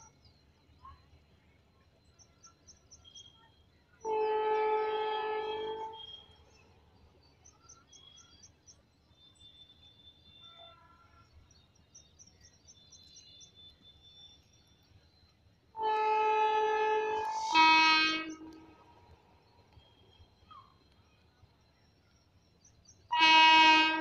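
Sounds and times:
train horn blast: 4.0s - 6.2s, 15.8s - 19.0s, 23.1s - 24.0s.

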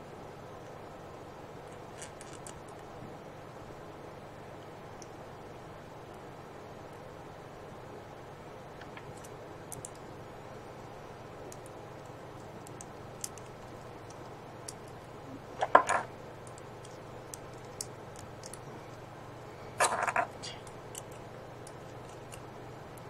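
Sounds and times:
plastic parts clicking: 15.6s - 18.6s.

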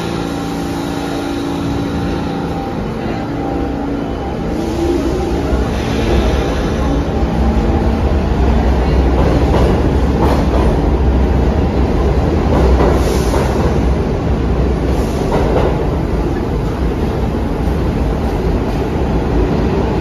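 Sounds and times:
subway train rumble: 0.0s - 20.0s.

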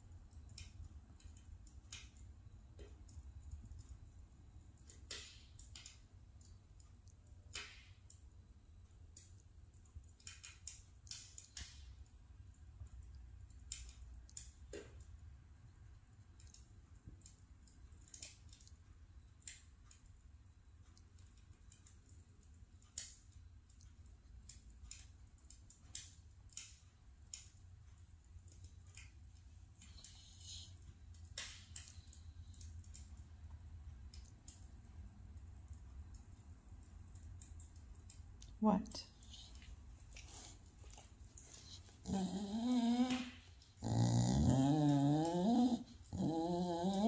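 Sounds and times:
faint clicks: 0.1s - 47.0s
dog vocalizing in drawn-out calls: 41.5s - 47.0s.

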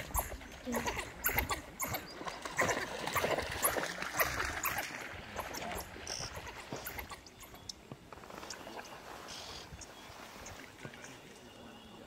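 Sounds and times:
wild dogs calling: 0.0s - 7.7s
water splashing: 0.0s - 11.7s.

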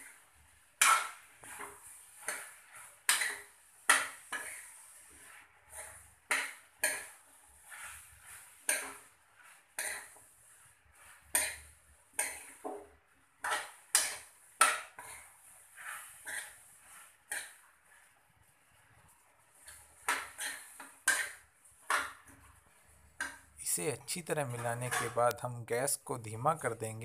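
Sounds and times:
spatula scraping frying pan: 0.8s - 18.3s, 19.5s - 25.3s.

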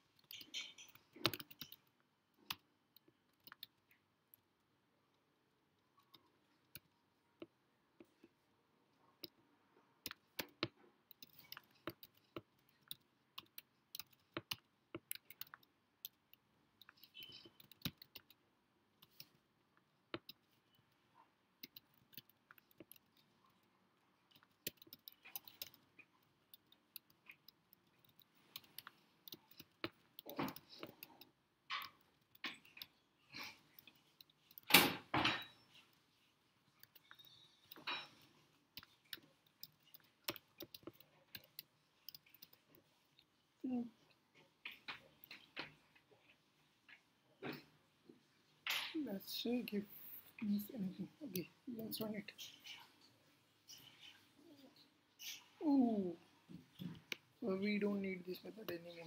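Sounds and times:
computer keyboard typing: 0.0s - 4.5s, 10.0s - 34.9s, 35.7s - 43.3s.

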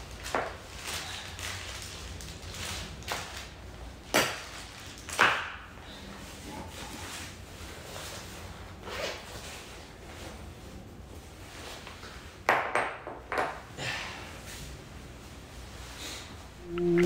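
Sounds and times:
plastic bag rustling: 0.0s - 5.2s.

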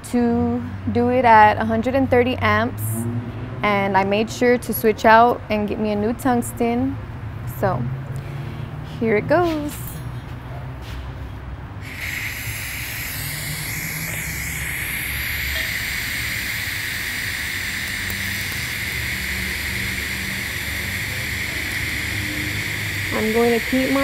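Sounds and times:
welding arc hissing: 11.8s - 24.0s.

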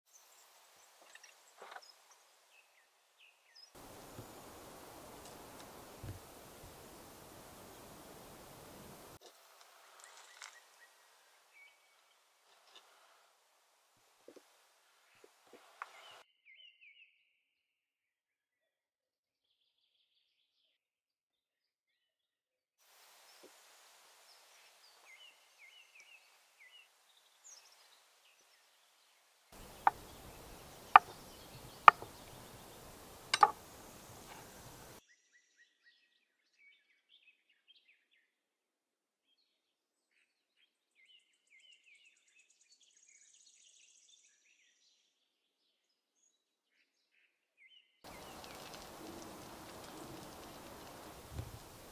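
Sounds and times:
birdsong chirps: 0.1s - 9.2s, 9.9s - 13.2s, 15.0s - 17.3s, 24.2s - 38.3s, 39.3s - 51.9s
knife striking cutting board: 33.3s - 33.6s.

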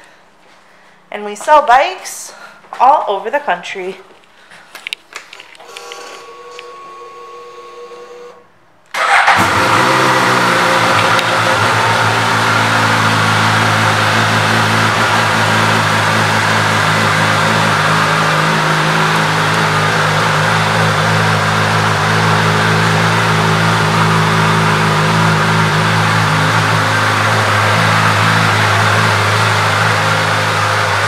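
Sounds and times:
motorcycle engine starting and idling: 8.9s - 31.0s.

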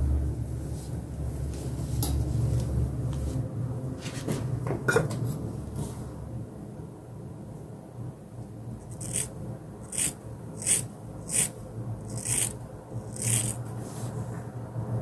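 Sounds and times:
scissors snipping hair: 12.1s - 13.6s.

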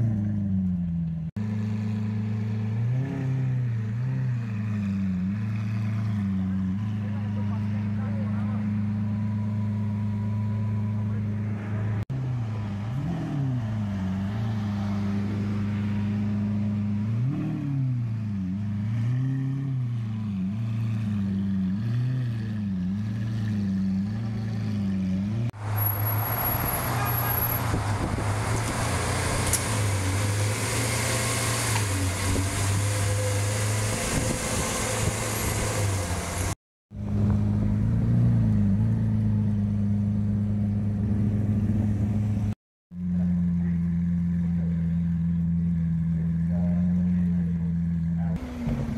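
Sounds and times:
car engine idling and revving: 0.0s - 48.9s.

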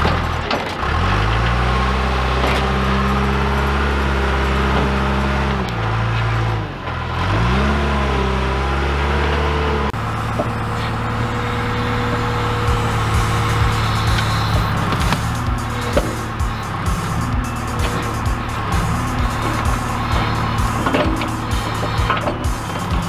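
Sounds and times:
diesel engine revving: 0.0s - 23.0s.

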